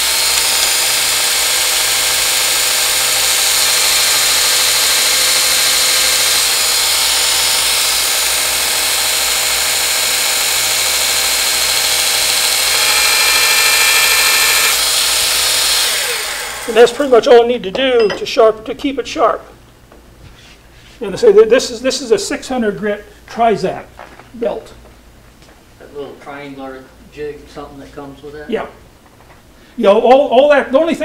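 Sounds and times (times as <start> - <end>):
steel grinding on abrasive belt: 0.0 - 17.1
thin whine: 12.5 - 14.8.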